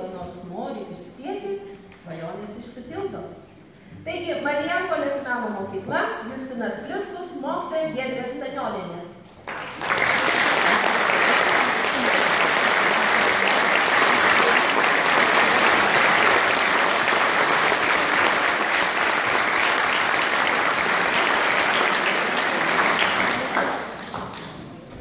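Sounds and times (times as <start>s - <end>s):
audience applauding: 9.4s - 24.9s.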